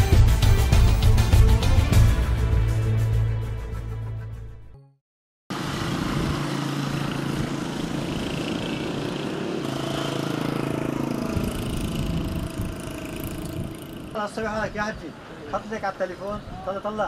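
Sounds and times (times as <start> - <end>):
engine running with low hum: 5.5 - 14.3.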